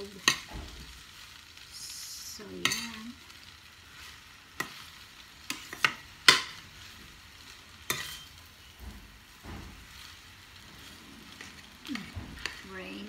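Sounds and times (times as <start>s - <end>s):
faint steady hiss: 0.0s - 13.0s
metal utensil scraping frying pan: 2.6s - 3.2s, 3.9s - 13.0s.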